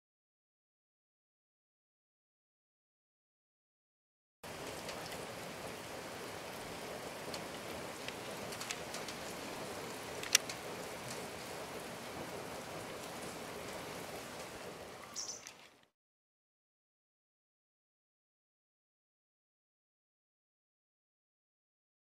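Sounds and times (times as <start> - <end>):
outdoor hiss: 4.4 - 15.9.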